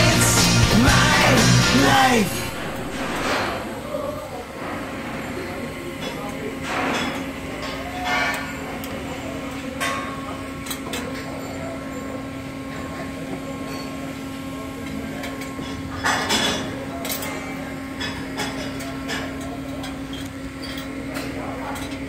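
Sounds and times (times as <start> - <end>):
industrial machinery hum: 0.0 - 3.8.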